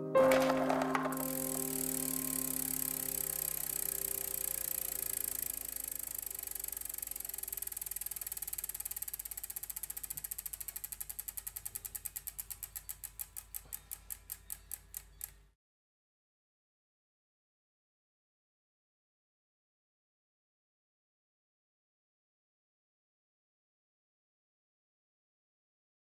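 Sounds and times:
music: 0.0s - 4.6s
clicks slowing down: 0.2s - 15.4s.

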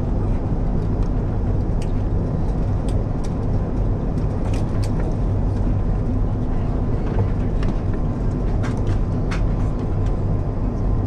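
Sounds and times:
aircraft cabin engine rumble: 0.0s - 11.0s.

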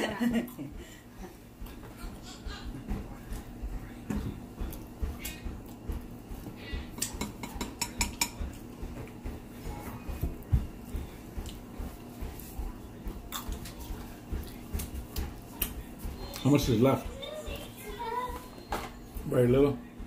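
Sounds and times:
fork clinking on crab and tray: 7.0s - 8.4s.

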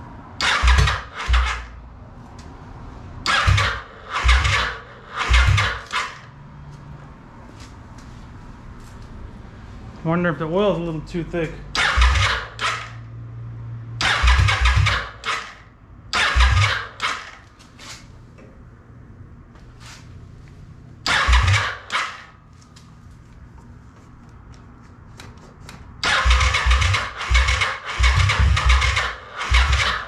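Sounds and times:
motorcycle engine cranking: 0.4s - 1.8s, 3.2s - 6.3s, 11.7s - 13.1s, 14.0s - 18.1s, 21.0s - 22.4s, 26.0s - 30.0s.

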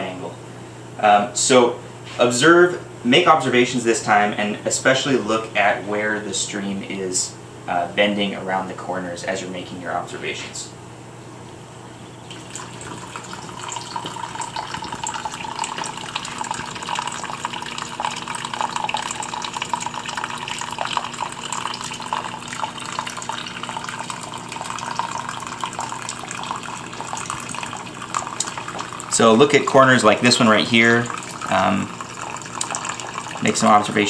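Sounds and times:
water splashing and trickling: 12.3s - 34.0s.

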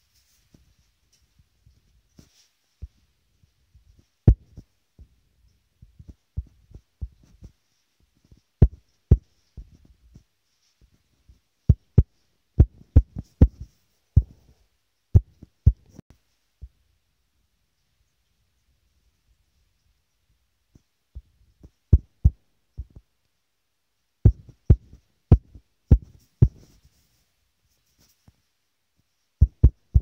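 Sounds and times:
fingertip tapping touchscreen: 24.3s - 26.7s.

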